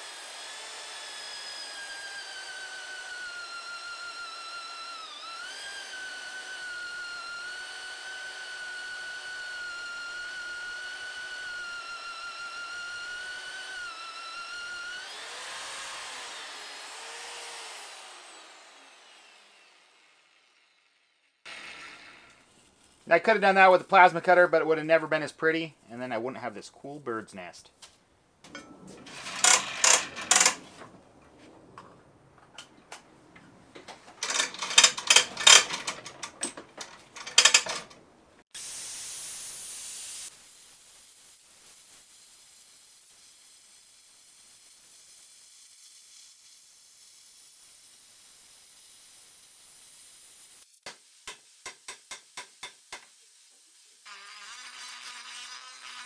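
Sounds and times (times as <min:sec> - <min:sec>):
cordless power tool motor whine: 0:00.0 - 0:20.6
steel plates clattering: 0:28.5 - 0:30.9, 0:34.2 - 0:38.0
plasma cutter hissing: 0:38.6 - 0:53.0.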